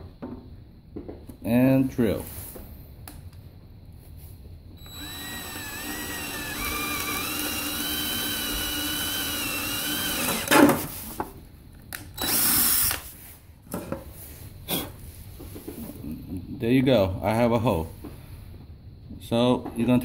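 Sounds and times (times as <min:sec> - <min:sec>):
drill boring through wood: 0:04.8 - 0:10.6, 0:12.2 - 0:13.0.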